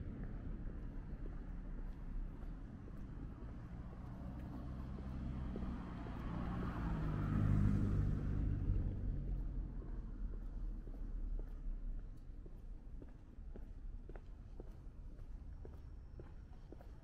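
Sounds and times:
car driving past: 3.9s - 10.3s.

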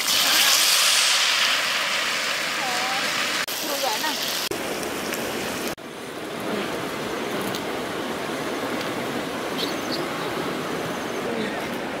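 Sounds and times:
food sizzling in a pan: 0.0s - 4.6s
faint fire crackles: 0.0s - 9.5s.

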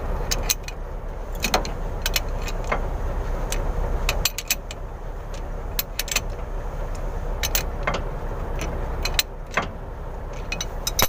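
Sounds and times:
steady low rumble: 0.0s - 11.0s
wrench metal clicks: 0.3s - 0.8s, 3.5s - 11.0s.

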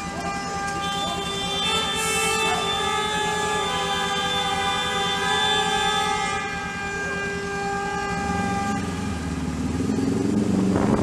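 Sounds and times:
vehicle horn blare: 0.0s - 9.5s
motorcycle engine revving: 4.5s - 11.0s.

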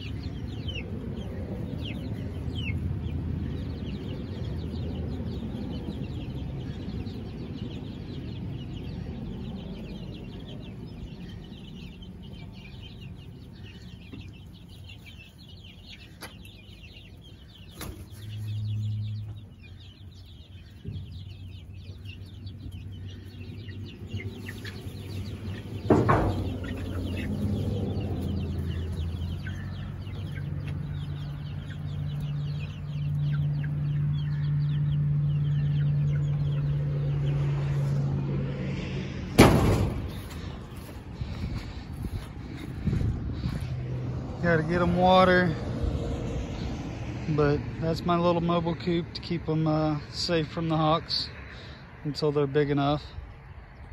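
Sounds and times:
chicks peeping and clucking: 0.0s - 53.9s
sharp knock: 39.4s - 40.3s.

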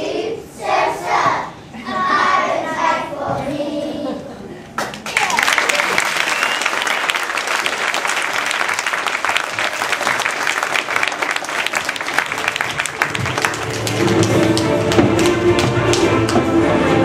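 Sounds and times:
audience applauding: 4.8s - 16.5s
music: 12.4s - 17.0s.

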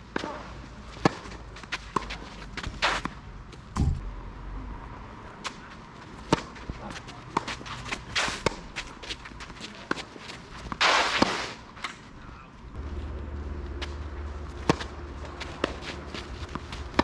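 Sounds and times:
tennis ball struck by rackets: 6.2s - 6.6s, 7.3s - 8.8s, 13.8s - 17.0s
tennis ball bouncing on court: 13.8s - 17.0s.

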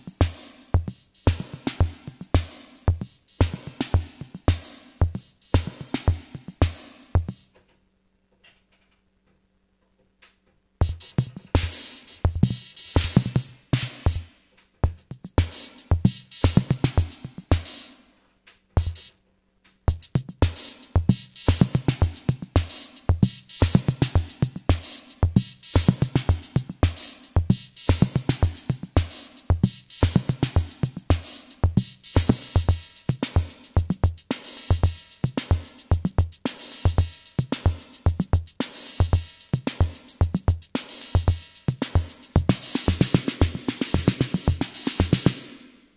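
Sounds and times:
electronic kick drum: 0.0s - 7.6s, 10.8s - 18.0s, 18.8s - 19.2s, 19.9s - 45.6s
hi-hat and cymbal hits: 0.0s - 7.6s, 10.8s - 18.2s, 18.8s - 19.2s, 19.9s - 45.9s.

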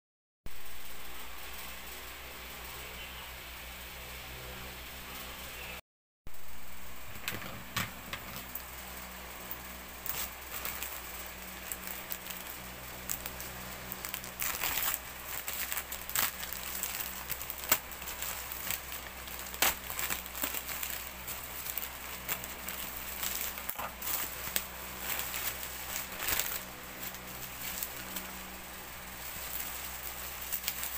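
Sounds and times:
plastic bag crinkling: 9.4s - 30.9s
scissors cutting plastic: 10.0s - 28.5s, 29.3s - 30.9s.

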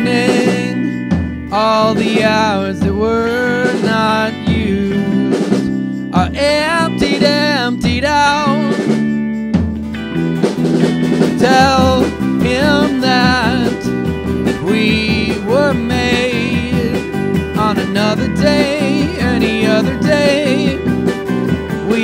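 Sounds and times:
man singing: 0.0s - 9.0s, 11.3s - 22.0s
live band playing: 0.0s - 22.0s.

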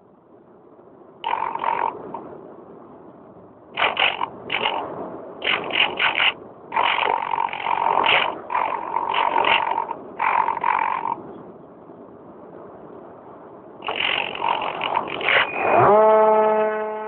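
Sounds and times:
model plane motor buzzing: 3.8s - 4.8s, 5.4s - 11.2s, 13.9s - 17.0s.

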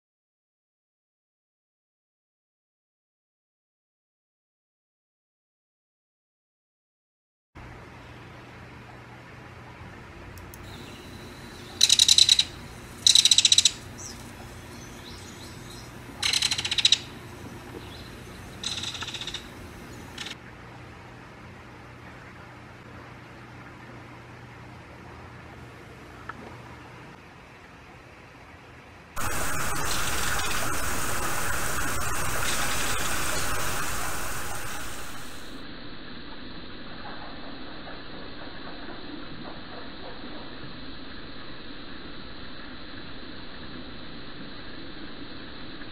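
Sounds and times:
kingfisher rattle call: 10.6s - 20.4s
waterfall splashing into pond: 29.2s - 35.6s.

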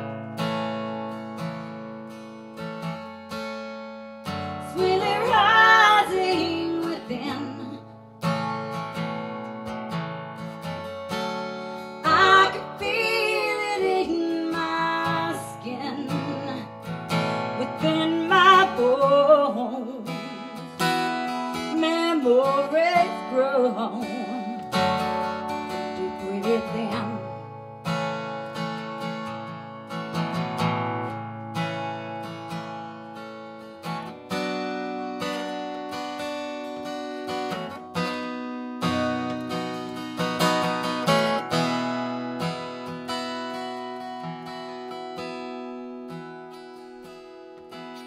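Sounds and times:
acoustic guitar strumming: 0.0s - 48.0s
person singing: 4.7s - 7.8s, 12.0s - 16.8s, 17.5s - 20.8s, 21.7s - 24.7s, 25.8s - 27.4s.

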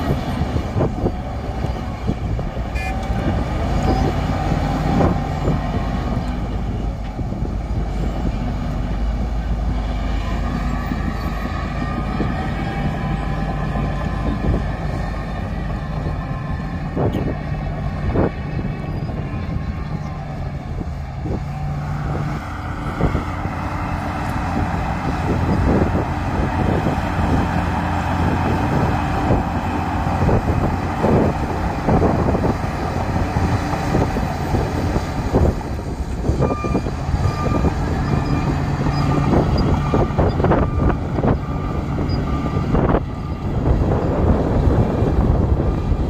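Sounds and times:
bulldozer diesel engine under load: 0.0s - 46.0s
reversing alarm beeping: 36.2s - 43.0s.

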